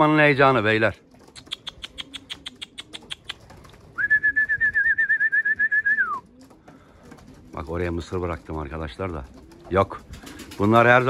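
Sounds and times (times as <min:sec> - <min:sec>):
quick even clicks: 0:01.2 - 0:03.7
trilled whistle: 0:04.0 - 0:06.2.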